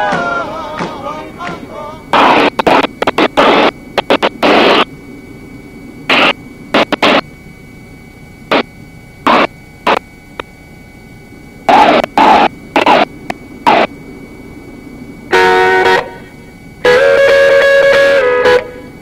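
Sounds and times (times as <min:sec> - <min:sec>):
static bursts on intercom: 0:00.0 - 0:04.9, 0:06.1 - 0:07.3, 0:08.5 - 0:10.1, 0:11.6 - 0:14.0, 0:15.3 - 0:19.0.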